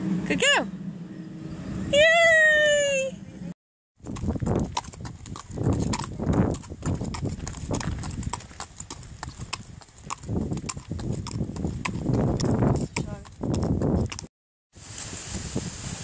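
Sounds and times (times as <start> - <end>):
hooves clip-clopping on gravel: 4.0 - 16.0.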